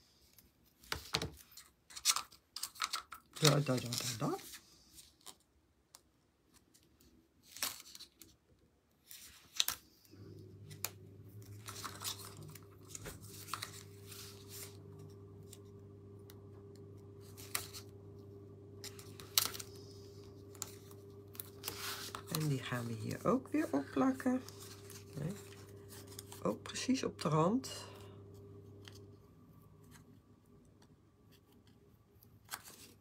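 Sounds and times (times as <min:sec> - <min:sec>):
tape ripping and crackling: 0:07.4 - 0:08.4, 0:18.9 - 0:19.9
low steady hum: 0:10.0 - 0:33.0.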